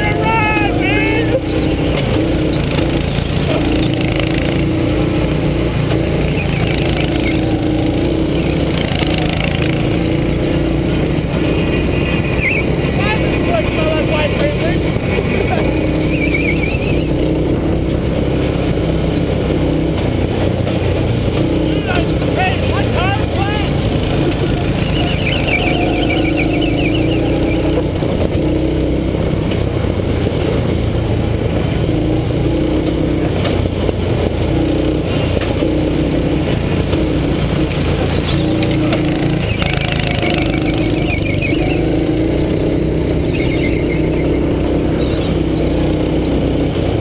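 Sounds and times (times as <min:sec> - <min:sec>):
go-kart engine revving: 0:00.0 - 0:47.0
tyre squeals: 0:06.2 - 0:09.6, 0:24.2 - 0:27.9.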